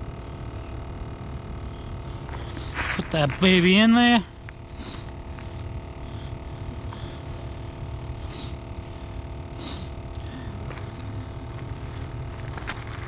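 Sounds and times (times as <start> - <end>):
motor running steadily: 0.0 - 13.0
faint rustles: 6.6 - 13.0.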